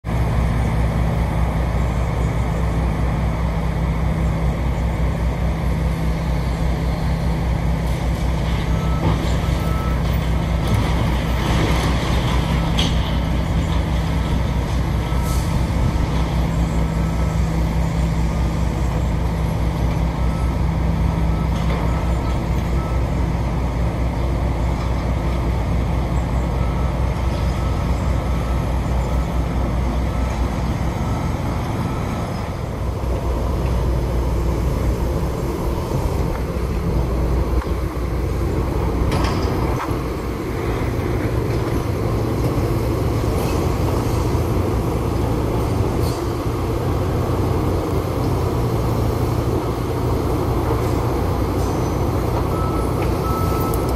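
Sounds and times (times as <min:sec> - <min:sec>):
excavator engine drone: 0:00.0 - 0:53.9
faint broken beeping: 0:52.4 - 0:53.9.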